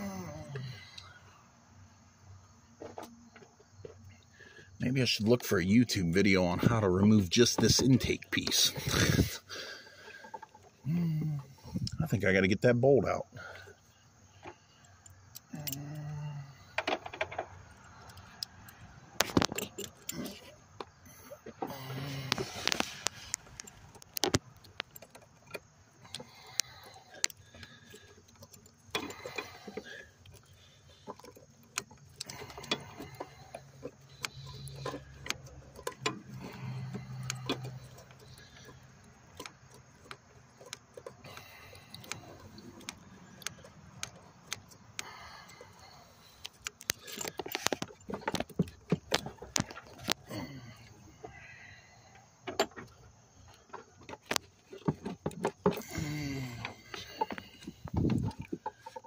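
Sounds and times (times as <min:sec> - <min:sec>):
metallic clicks of hand tools: 0:15.0 - 0:20.9, 0:31.1 - 0:50.9.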